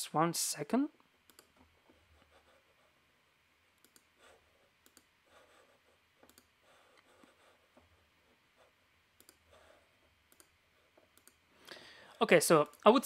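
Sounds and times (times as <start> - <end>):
computer mouse and keyboard clicks: 1.2 - 2.4, 3.8 - 5.4, 6.2 - 7.9, 9.2 - 11.4.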